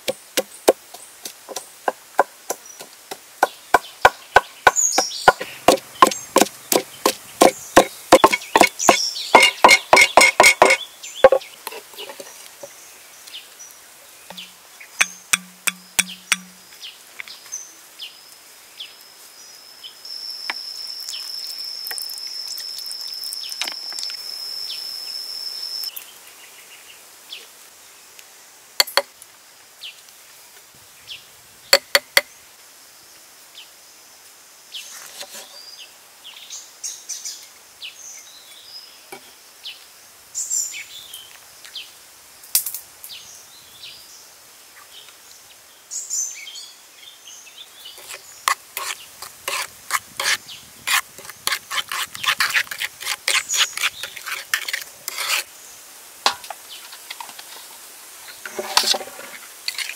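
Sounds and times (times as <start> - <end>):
bird chirps: 3.4 - 11.6, 14.3 - 16.9
utensils knocking on mortar: 4.7 - 11.5, 14.3 - 16.6, 56.3 - 56.5.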